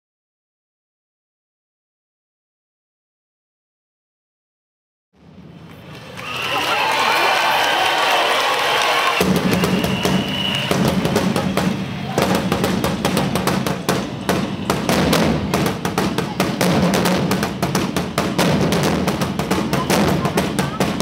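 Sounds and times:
wooden drums beaten with sticks: 0:09.2 - 0:21.0.

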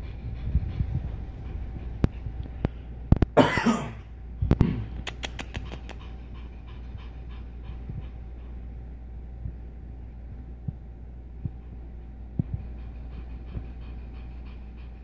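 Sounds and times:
cat panting: 0:00.0 - 0:03.0, 0:05.0 - 0:09.7, 0:11.4 - 0:15.0.

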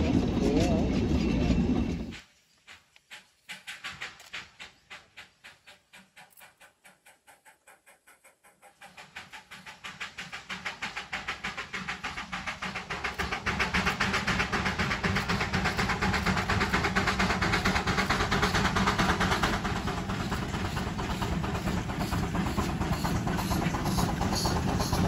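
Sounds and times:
steam locomotive chuffing: 0:00.0 - 0:25.0.

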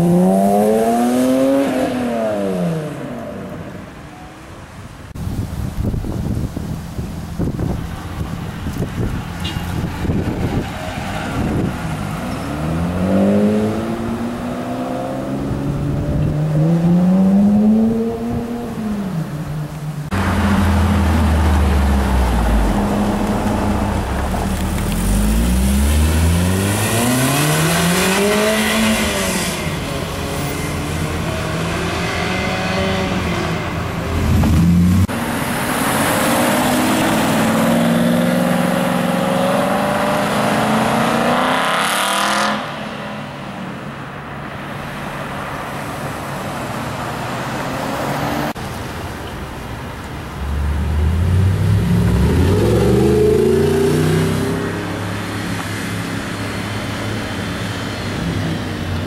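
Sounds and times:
sports cars accelerating hard: 0:10.0 - 0:19.3, 0:20.1 - 0:43.0, 0:50.3 - 0:59.0.

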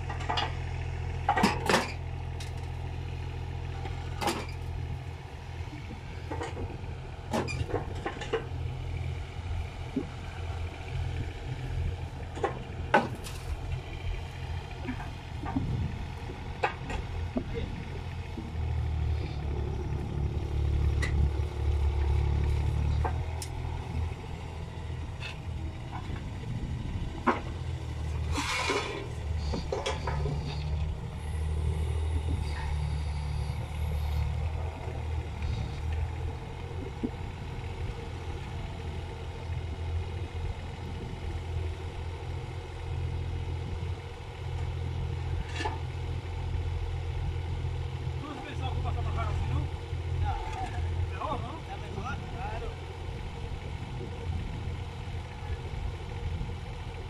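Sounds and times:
excavator diesel engine rumbling: 0:00.0 - 0:57.0
hissing scrape: 0:28.2 - 0:30.8.

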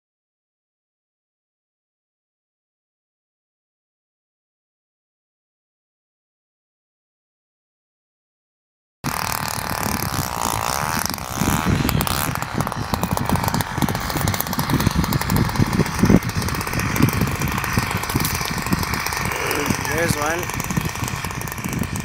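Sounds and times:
wind buffeting microphone: 0:09.1 - 0:22.0.

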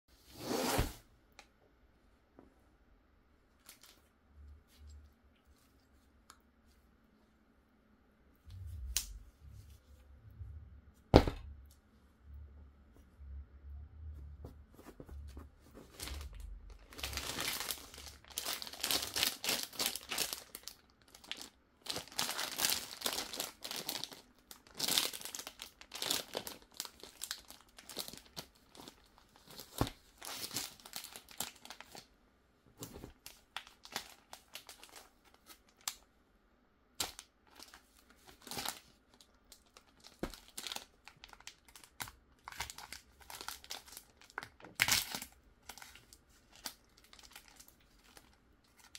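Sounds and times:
plastic wrapping crinkling: 0:14.8 - 0:32.1, 0:32.8 - 0:36.0, 0:37.0 - 0:48.9.

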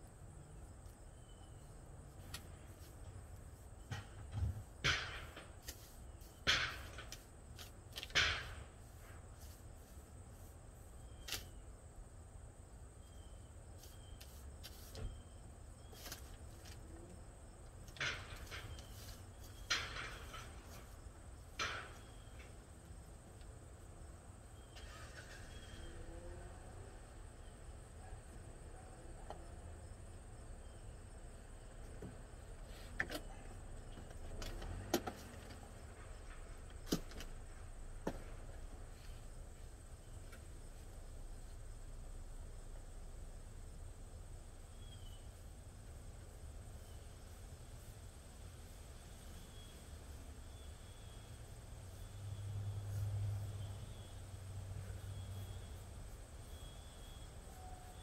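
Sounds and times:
paintbrush brushing and tapping: 0:02.1 - 0:03.9, 0:04.5 - 0:11.5, 0:13.8 - 0:16.8, 0:18.3 - 0:22.3
low steady rumble: 0:35.6 - 0:58.0.

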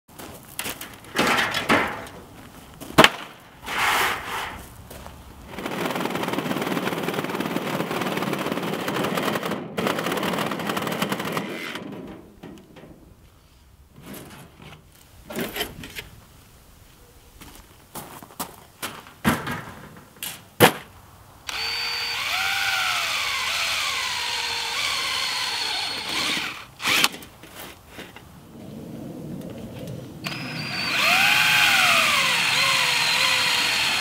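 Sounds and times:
sheet metal clattering: 0:00.8 - 0:02.2
sharp crack: 0:02.9 - 0:03.6
reciprocating saw cutting steel: 0:03.6 - 0:04.6, 0:21.5 - 0:27.2, 0:30.2 - 0:34.0.

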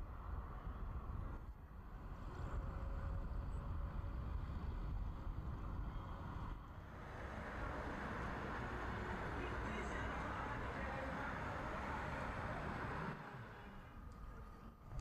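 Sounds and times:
cars passing on road: 0:04.0 - 0:15.0.

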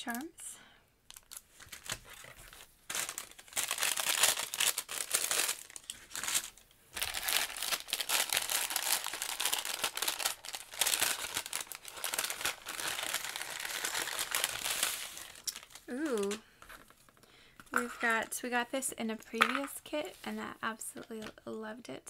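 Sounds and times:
paper bag crinkling: 0:01.1 - 0:17.2.

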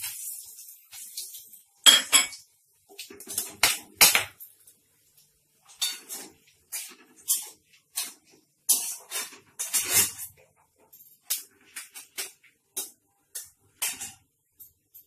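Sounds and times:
spoon clinking against metal pan: 0:01.9 - 0:02.4.

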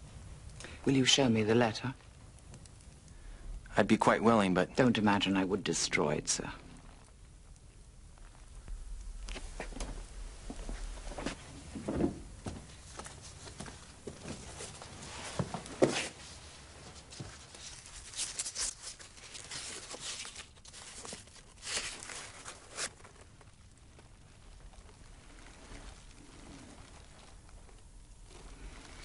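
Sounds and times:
paper crackling and rustling: 0:09.2 - 0:29.0.

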